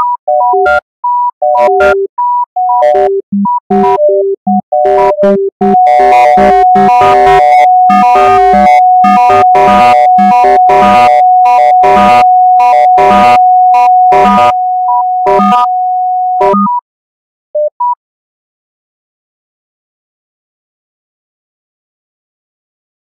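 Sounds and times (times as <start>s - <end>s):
short beeps: 0.0s - 16.8s
synthesizer step sequence: 2.8s - 15.8s
held high synth tone: 5.7s - 16.6s.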